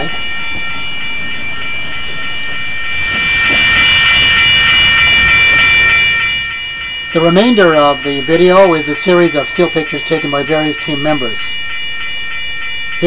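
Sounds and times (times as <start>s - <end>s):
crossing signal bell ringing: 0.0s - 13.0s.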